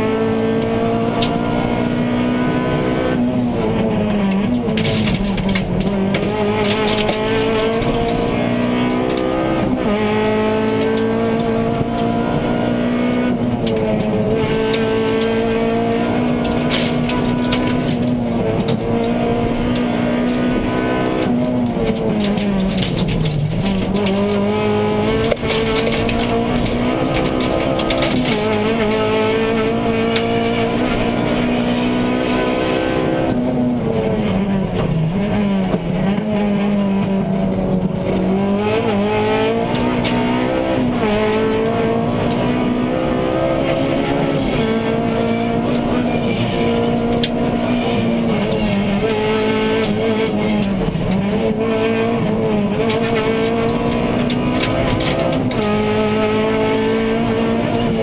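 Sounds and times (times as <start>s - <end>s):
car engine revving: 0.0s - 58.0s
road and tyre noise: 0.0s - 58.0s.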